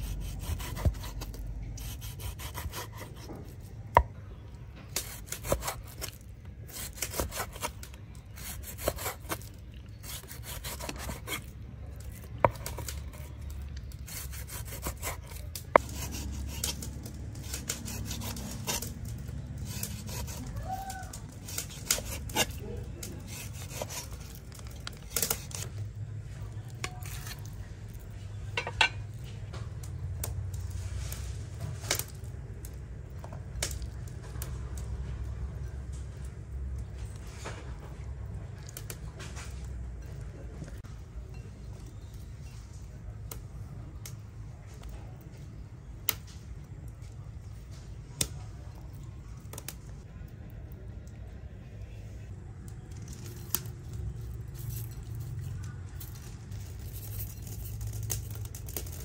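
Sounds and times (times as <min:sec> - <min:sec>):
knife sawing through meat: 0:00.0 - 0:03.3, 0:05.0 - 0:07.8, 0:08.4 - 0:11.5, 0:14.1 - 0:18.9, 0:19.6 - 0:20.6, 0:21.4 - 0:24.5, 0:25.2 - 0:25.7.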